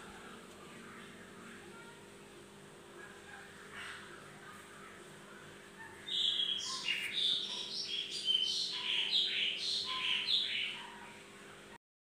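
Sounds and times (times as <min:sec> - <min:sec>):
faint steady hum: 0:00.0 - 0:11.8
songbird chirping: 0:05.8 - 0:11.2.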